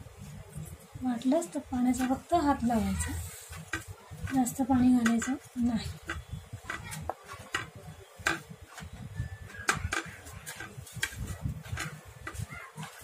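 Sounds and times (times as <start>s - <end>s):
low rumble of pressing dough: 1.4s - 13.0s
dough knocking on metal plate: 3.5s - 8.9s, 9.5s - 12.9s.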